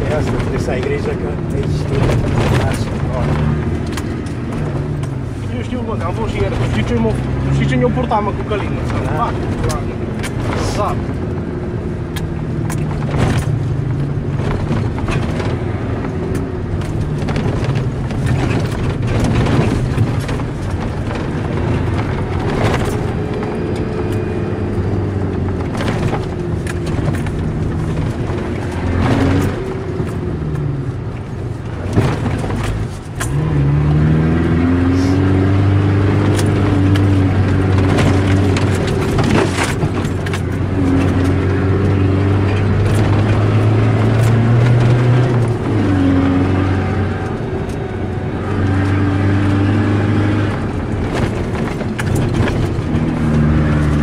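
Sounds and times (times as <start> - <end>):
diesel engine driving: 0.0 - 54.0
car body knocks and rattles: 12.6 - 23.7, 25.4 - 33.3, 36.2 - 41.8, 50.5 - 54.0.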